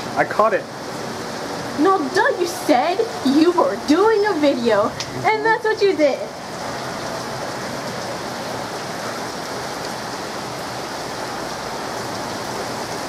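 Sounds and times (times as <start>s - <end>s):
heavy rain pouring: 0.0s - 13.0s.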